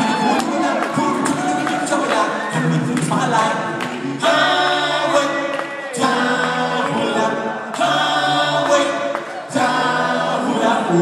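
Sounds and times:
men singing a cappella harmony: 0.0 - 11.0.

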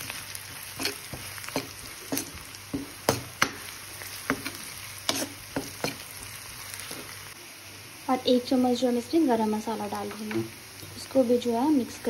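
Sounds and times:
spatula scraping a pan: 0.0 - 7.2
onions sizzling in oil: 0.0 - 12.0.

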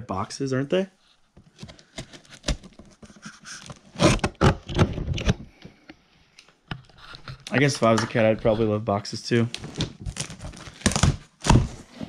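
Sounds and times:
scraping and knocking on cardboard box: 10.0 - 12.0.

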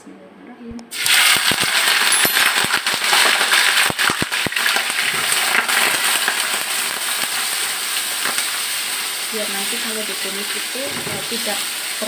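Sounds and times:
shrimp sizzling in hot oil: 0.9 - 12.0.

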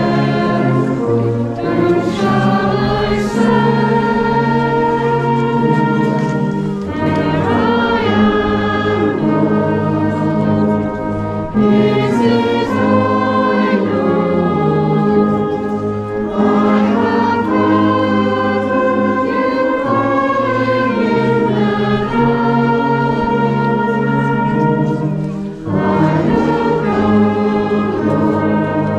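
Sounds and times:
brass band playing: 0.0 - 28.9
congregation singing a hymn: 0.0 - 28.9.

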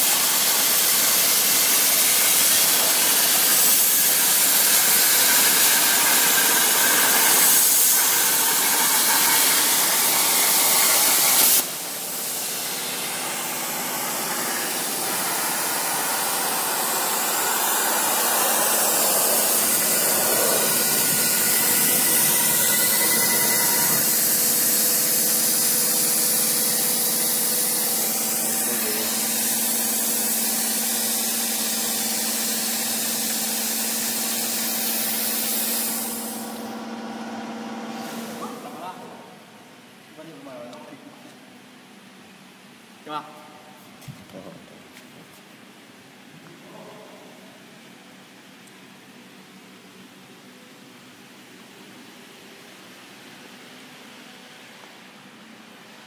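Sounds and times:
plasma torch hissing: 0.0 - 36.7.

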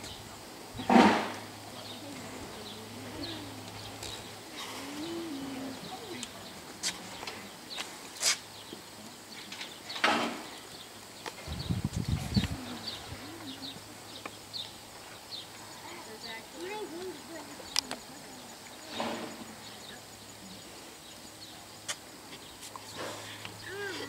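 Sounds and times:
birds chirping: 0.0 - 24.0
loud scraping rustles: 18.8 - 19.6.

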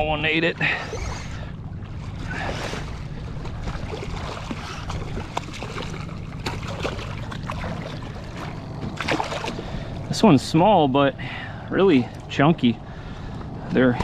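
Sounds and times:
water around kayak: 0.0 - 14.0
small splashes and knocks: 1.9 - 9.8.

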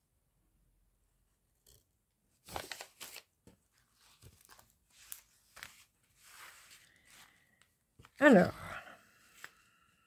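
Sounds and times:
packaging rustling and crinkling: 2.4 - 3.3.

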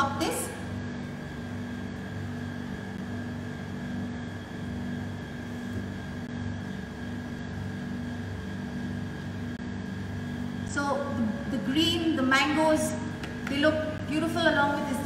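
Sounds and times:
mechanical hum with high whine: 0.0 - 15.0.

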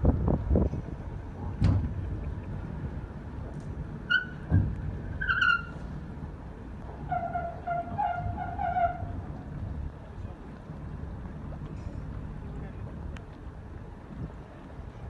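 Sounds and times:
hull sliding rumble: 0.0 - 15.0
high-pitched squeals: 5.2 - 5.8.

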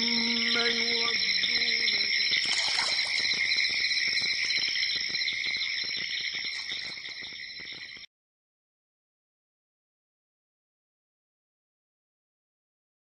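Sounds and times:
high-pitched insect chorus: 0.0 - 8.1.

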